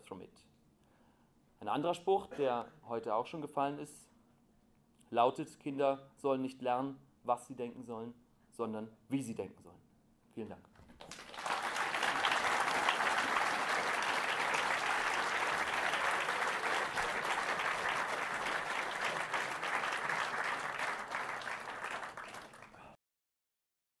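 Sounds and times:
large audience applauding: 10.9s - 23.0s.

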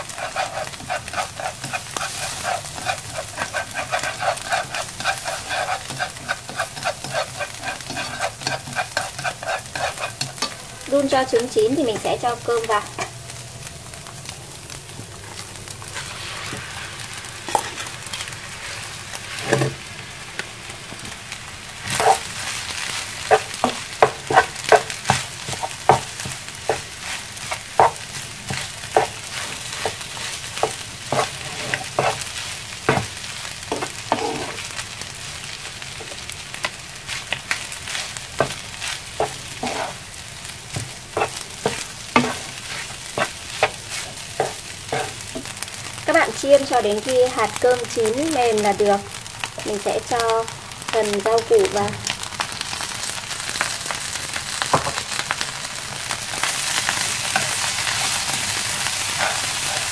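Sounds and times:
spatula scraping and tapping pan: 0.0s - 10.6s, 17.5s - 18.3s, 21.8s - 22.3s, 23.3s - 34.7s, 36.0s - 40.1s, 40.7s - 45.6s, 56.4s - 59.9s
rice sizzling in frying pan: 0.0s - 59.9s.

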